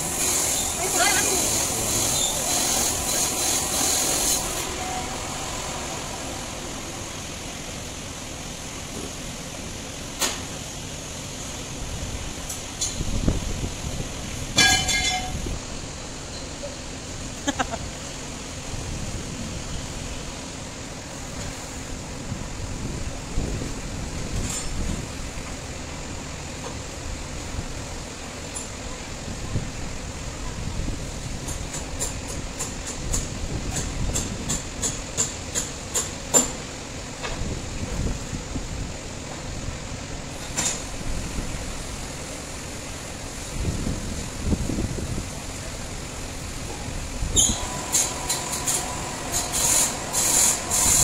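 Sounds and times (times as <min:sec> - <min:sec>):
workshop machinery humming: 0:00.0 - 0:09.2, 0:46.7 - 0:51.0
low mechanical rumble: 0:00.0 - 0:09.8
high hiss: 0:00.0 - 0:22.1, 0:30.9 - 0:51.0.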